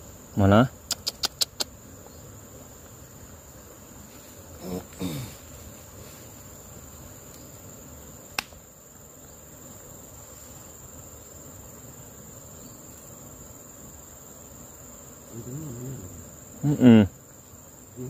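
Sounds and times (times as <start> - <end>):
crickets trilling: 0.0 - 18.0
man making vocal sound: 4.6 - 5.4, 15.3 - 17.1.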